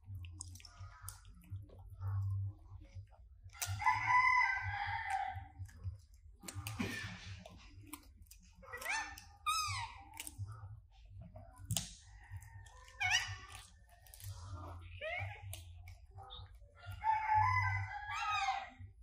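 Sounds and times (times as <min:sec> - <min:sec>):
rooster crowing: 0:03.7 - 0:05.5, 0:16.9 - 0:18.8.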